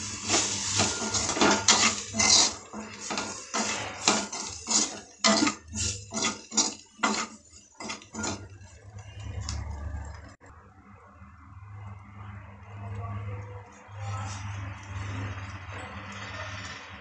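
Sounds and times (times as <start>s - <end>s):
metal spoon scraping a pan: 0.0s - 10.2s.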